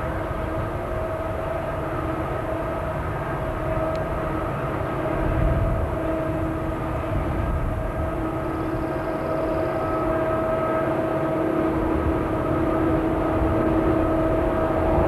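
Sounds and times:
diesel locomotive rumble: 0:00.0 - 0:15.0
steady droning tone: 0:00.0 - 0:15.0.

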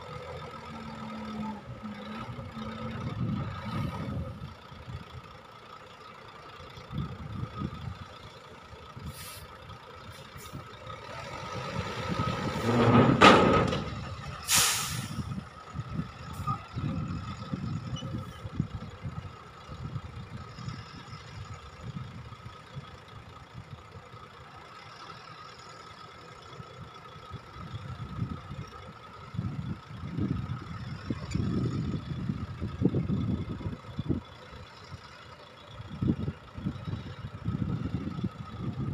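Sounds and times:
diesel truck engine rumbling: 0:00.0 - 0:38.9
air release hiss: 0:14.5 - 0:15.2.

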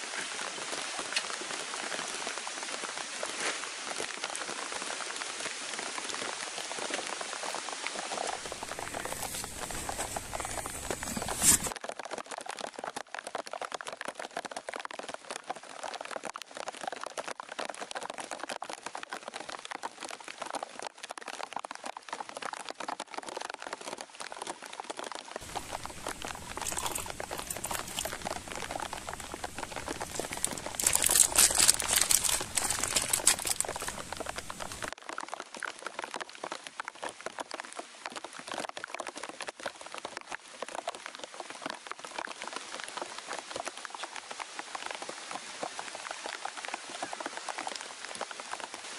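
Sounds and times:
rain pattering on leaves: 0:00.0 - 0:48.9
crackling: 0:08.0 - 0:11.8, 0:25.4 - 0:35.0.

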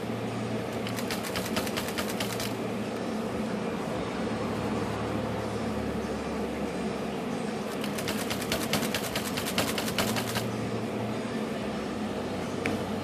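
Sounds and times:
manual typewriter clicking: 0:00.8 - 0:02.6, 0:07.7 - 0:10.4.

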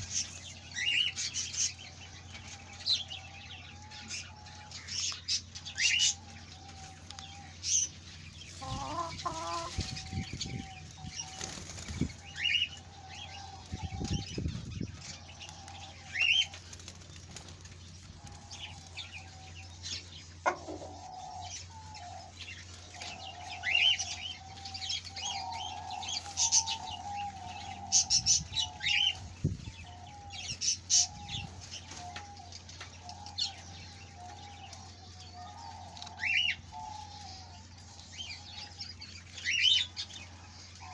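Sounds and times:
small birds chirping: 0:00.0 - 0:40.9
feathers rustling and flapping: 0:09.5 - 0:12.7, 0:13.6 - 0:19.2.

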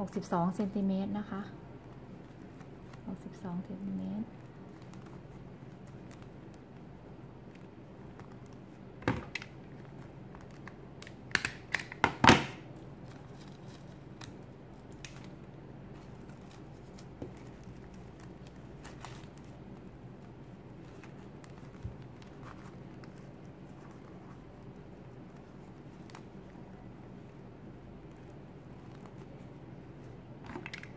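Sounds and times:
faint steady hum: 0:00.0 - 0:30.9
stiff fabric crinkling: 0:12.8 - 0:30.9.

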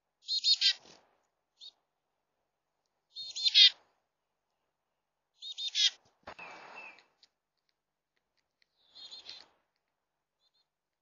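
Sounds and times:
chickadee calling: 0:00.2 - 0:00.9, 0:03.1 - 0:03.8, 0:05.4 - 0:07.1, 0:08.7 - 0:09.6.

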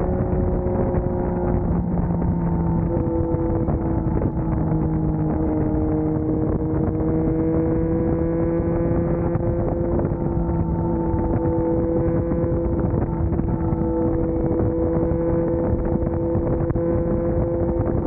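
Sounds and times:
motorcycle engine cruising: 0:00.0 - 0:18.0
road and wind noise: 0:00.0 - 0:18.0.

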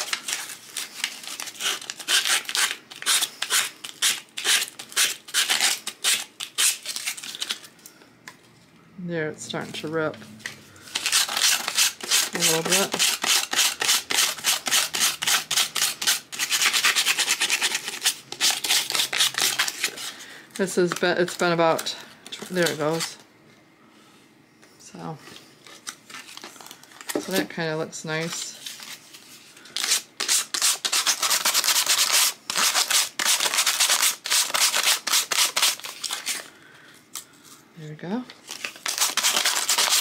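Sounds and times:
paper tearing: 0:00.0 - 0:07.5, 0:38.5 - 0:40.0.

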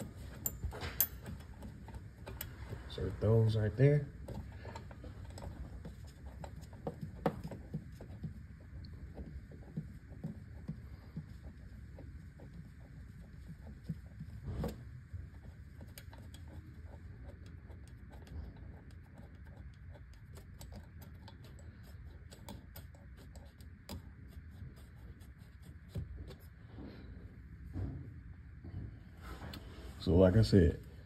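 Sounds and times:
metallic clicks and scrapes of bolts: 0:00.0 - 0:02.7
low steady hum: 0:00.0 - 0:31.0.

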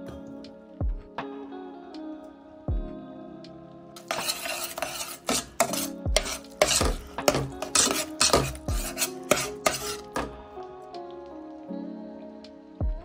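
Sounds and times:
metal spoon scraping saucepan: 0:04.0 - 0:10.4.

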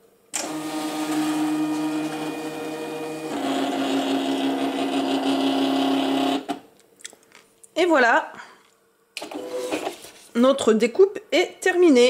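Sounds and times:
cutting machine motors whining: 0:00.4 - 0:06.6.

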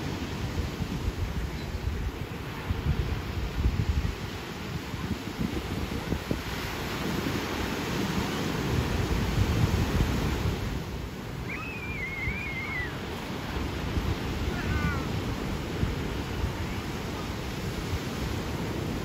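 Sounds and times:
ocean surf breaking: 0:00.0 - 0:19.0
wind buffeting microphone: 0:00.0 - 0:19.0
faint high warbling call: 0:11.4 - 0:13.0.

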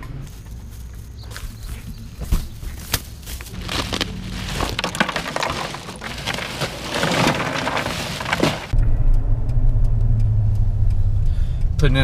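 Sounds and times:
ice bag rustling: 0:03.4 - 0:08.8
ice cubes crunching and clattering: 0:03.4 - 0:08.8.

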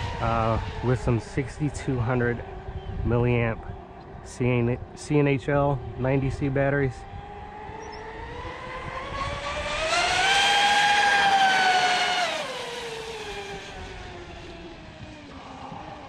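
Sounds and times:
electric motor whine of boat passing: 0:07.0 - 0:16.0.

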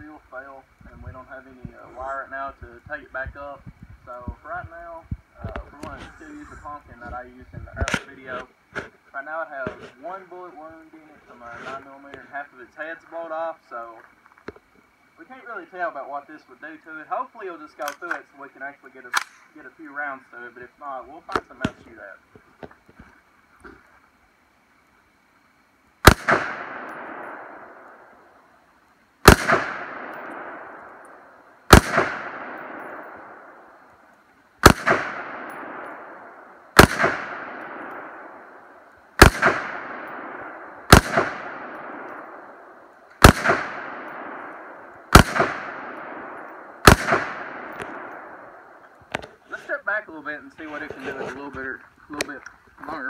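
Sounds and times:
rifle shots with echo: 0:26.0 - 0:28.1, 0:29.2 - 0:33.8, 0:34.6 - 0:48.8.

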